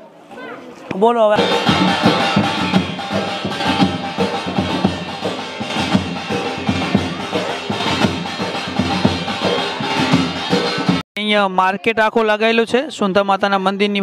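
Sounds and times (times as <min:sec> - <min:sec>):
music with drums and percussion: 0:01.3 - 0:11.0.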